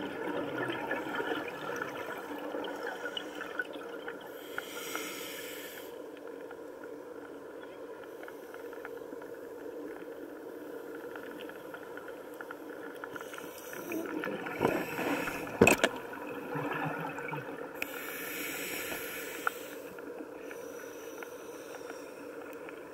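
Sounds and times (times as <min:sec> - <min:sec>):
underwater low rush with crackling: 0:00.0 - 0:22.9
hiss: 0:04.3 - 0:06.0, 0:17.8 - 0:22.3.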